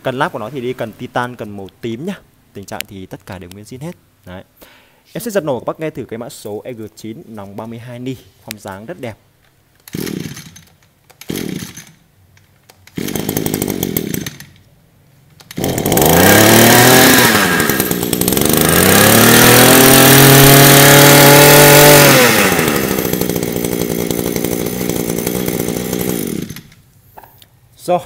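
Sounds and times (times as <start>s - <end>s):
brush cutter engine revving and idling: 9.9s - 10.5s, 11.2s - 11.9s, 12.9s - 14.5s, 15.5s - 26.7s.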